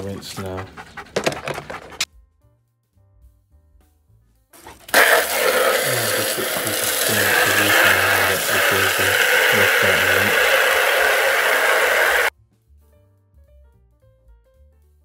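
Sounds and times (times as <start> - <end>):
hose spraying water into trough: 4.9 - 12.3.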